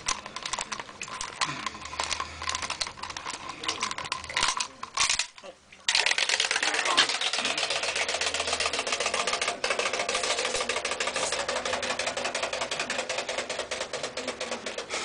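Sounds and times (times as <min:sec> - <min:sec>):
toy paddling in water: 0:00.0 - 0:05.1, 0:05.9 - 0:14.8
spring motor clicking rapidly: 0:05.9 - 0:15.0.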